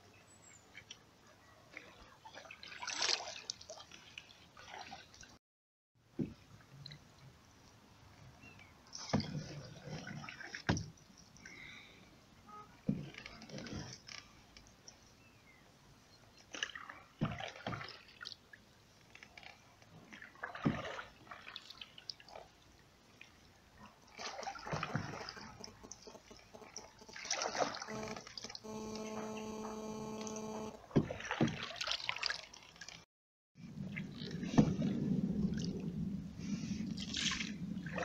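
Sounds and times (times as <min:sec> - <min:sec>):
paddle splashing in water: 0:01.7 - 0:05.4, 0:08.8 - 0:14.4, 0:16.4 - 0:33.0, 0:33.6 - 0:35.7, 0:37.0 - 0:38.0
steady pitched tone: 0:25.1 - 0:30.9.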